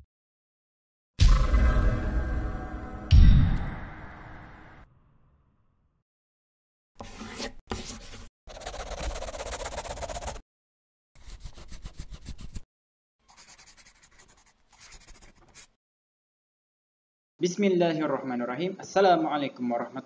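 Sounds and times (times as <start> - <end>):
pen scratching on paper: 7.0 - 10.4, 11.2 - 12.6, 13.3 - 15.8.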